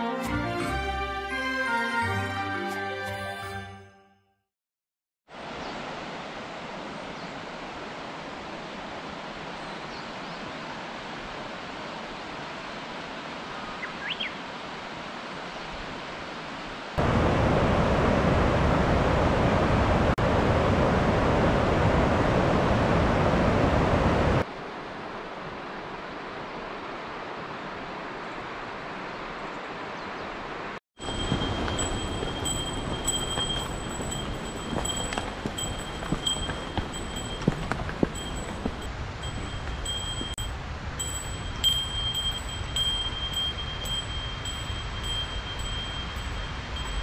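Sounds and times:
mountain stream rushing: 0:05.3 - 0:47.0.

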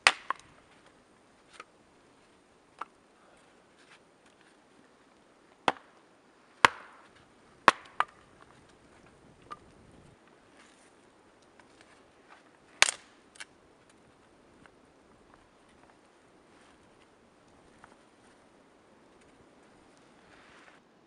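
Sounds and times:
hatchet chopping wood: 0:00.0 - 0:00.5, 0:05.6 - 0:05.9, 0:06.6 - 0:08.2.

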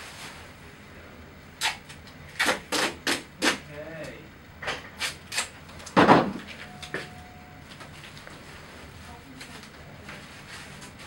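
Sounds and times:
duct tape ripping off roll: 0:01.6 - 0:03.6, 0:05.0 - 0:05.5.

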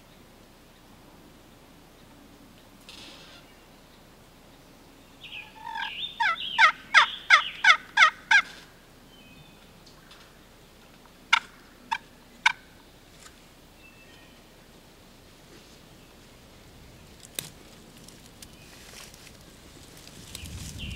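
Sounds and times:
turkey clucks: 0:05.3 - 0:08.7, 0:11.3 - 0:12.7
turkey yelps: 0:05.4 - 0:08.6, 0:11.3 - 0:12.6.

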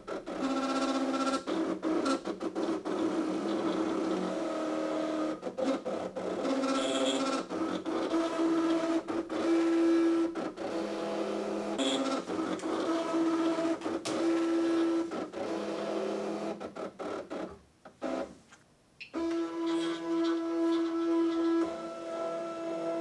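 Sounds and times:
cutting machine motors whining: 0:19.2 - 0:23.0.

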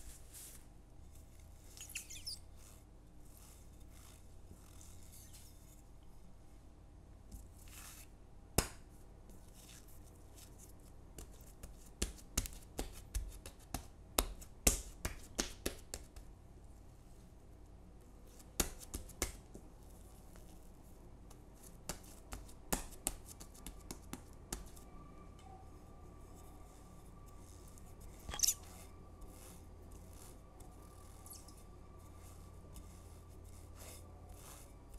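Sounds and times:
hands kneading sticky dough: 0:07.3 - 0:16.4, 0:18.3 - 0:24.8.

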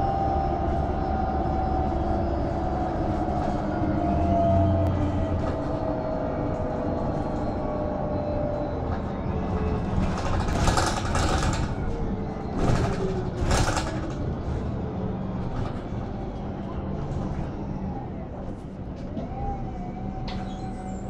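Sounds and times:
bus engine and road noise: 0:00.0 - 0:21.0.

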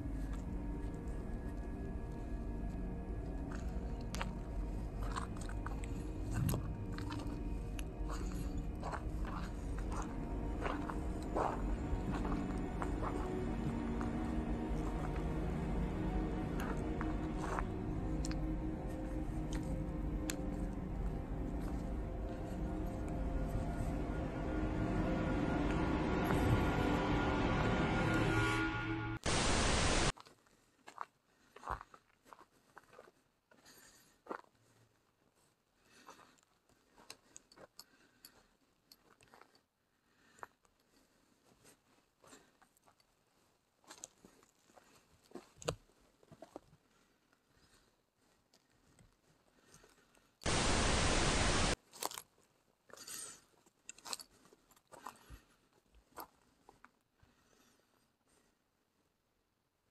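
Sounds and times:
footsteps crunching in dry grass: 0:00.0 - 0:25.2, 0:50.4 - 0:52.6
loud static-like hiss: 0:29.2 - 0:30.1, 0:50.5 - 0:51.8.

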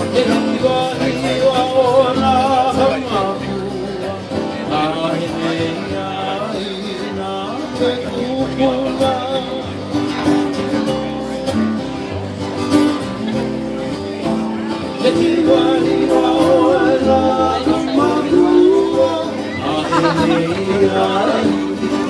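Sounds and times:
person singing with vibrato: 0:14.9 - 0:22.0.

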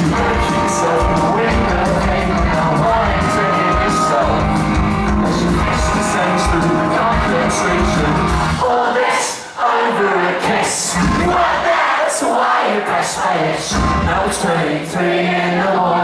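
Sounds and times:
electric guitar: 0:00.0 - 0:08.6
live rock band playing: 0:00.0 - 0:08.6.

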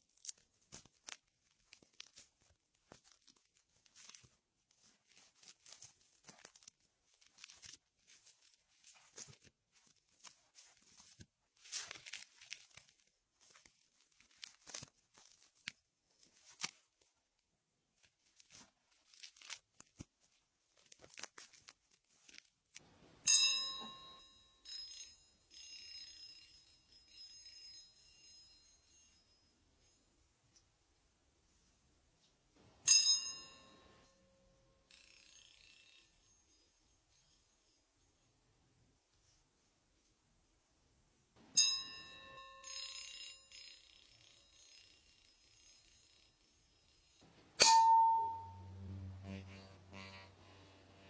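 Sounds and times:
struck metal tool ringing: 0:32.8 - 0:34.0, 0:41.5 - 0:45.2, 0:46.8 - 0:48.8.

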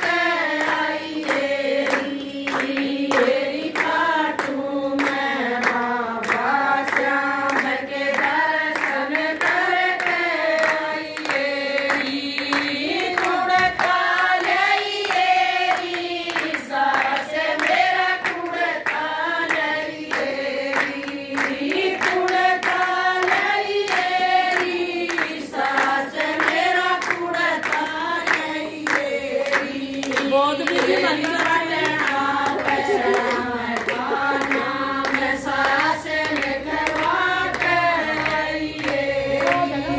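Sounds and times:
rhythmic hand-clapping: 0:00.0 - 0:39.9
women singing together: 0:00.0 - 0:39.9.

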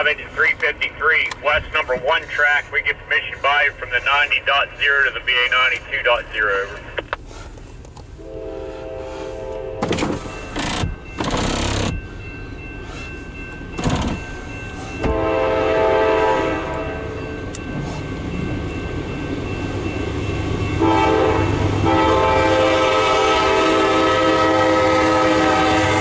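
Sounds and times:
locomotive air horn: 0:08.1 - 0:10.0, 0:15.0 - 0:17.2, 0:20.8 - 0:26.0.

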